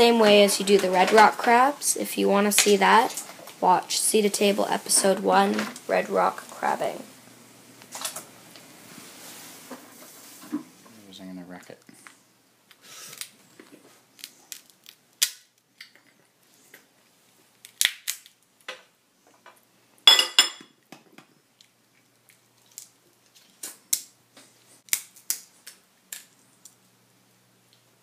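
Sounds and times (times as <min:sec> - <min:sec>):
crab shell cracking: 0:14.1 - 0:16.0, 0:17.6 - 0:18.5, 0:21.6 - 0:24.2, 0:24.8 - 0:26.8.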